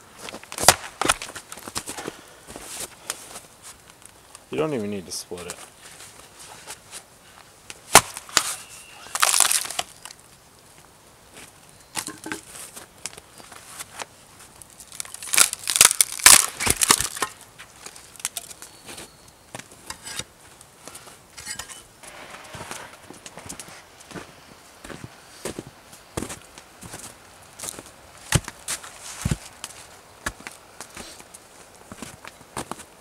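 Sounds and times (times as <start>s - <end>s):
wood cracking apart: 7.9s - 10.4s, 14.5s - 18.8s.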